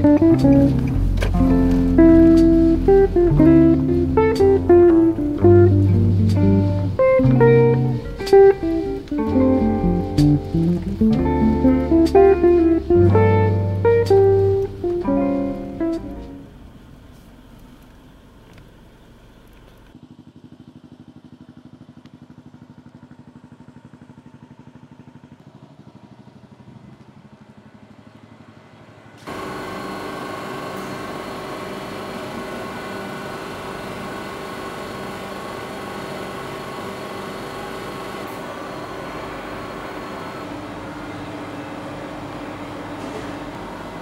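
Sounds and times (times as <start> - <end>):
low pulsing rumble: 0.0 - 19.9
vending machines humming: 0.0 - 20.0, 29.3 - 44.0.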